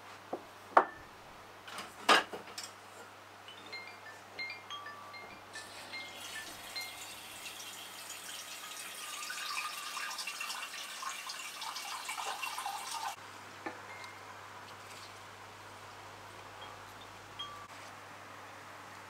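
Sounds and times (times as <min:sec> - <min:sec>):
water running into a sink: 0:06.1 - 0:13.2.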